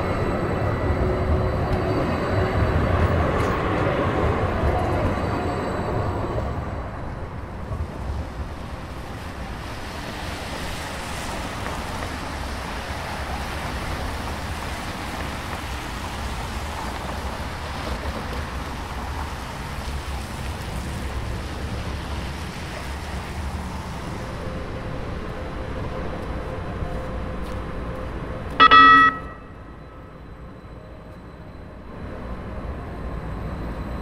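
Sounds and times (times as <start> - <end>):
tyres hissing on wet pavement: 8.6 - 24.3.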